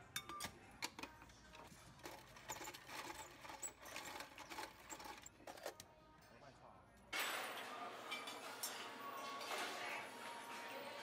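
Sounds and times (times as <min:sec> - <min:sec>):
ice crusher grinding ice: 0:02.0 - 0:05.3.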